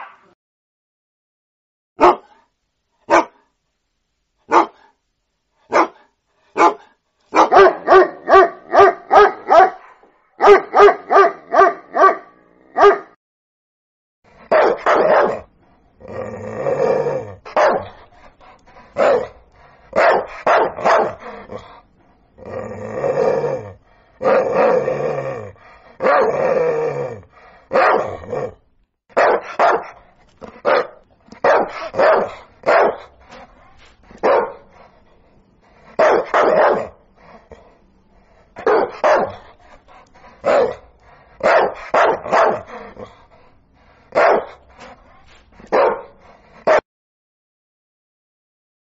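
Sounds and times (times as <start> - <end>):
dog barking: 0.0 - 0.4, 2.0 - 2.5, 3.1 - 3.5, 4.5 - 5.0, 5.7 - 13.2, 14.4 - 15.5, 17.5 - 18.0, 19.0 - 21.4, 26.0 - 26.4, 27.7 - 28.2, 29.1 - 33.2, 34.2 - 34.8, 35.9 - 37.0, 38.6 - 39.5, 40.4 - 40.8, 41.4 - 43.0, 44.1 - 44.6, 45.6 - 46.8.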